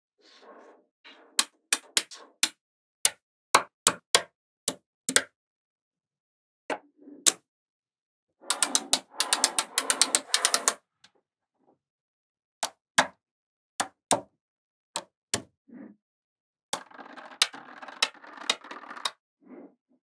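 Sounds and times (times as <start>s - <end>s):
magnetic balls clicking together: 16.8s - 19.2s.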